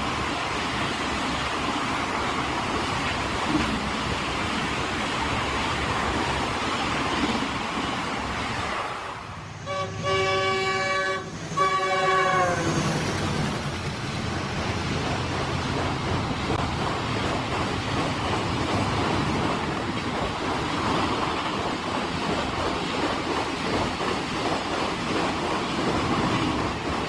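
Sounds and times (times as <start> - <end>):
train wheels roaring on rails: 0.0 - 27.0
locomotive horn blasts: 9.6 - 12.7.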